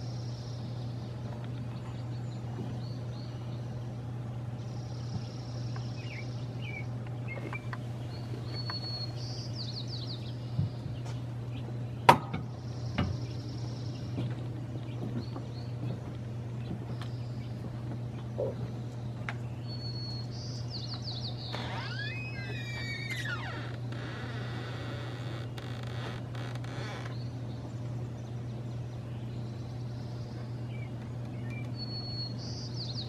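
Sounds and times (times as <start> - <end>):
small birds chirping: 0.0 - 33.0
steady low hum: 0.0 - 33.0
buzzy bird trill: 19.6 - 25.9.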